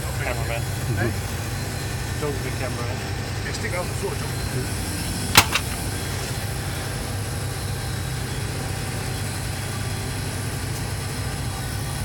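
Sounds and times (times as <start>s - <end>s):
air conditioner unit humming: 0.0s - 12.0s
fan air rush: 4.0s - 8.9s.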